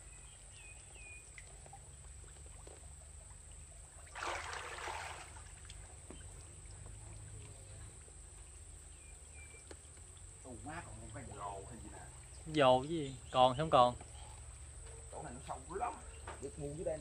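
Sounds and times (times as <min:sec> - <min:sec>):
water splash: 0:03.9 - 0:06.7.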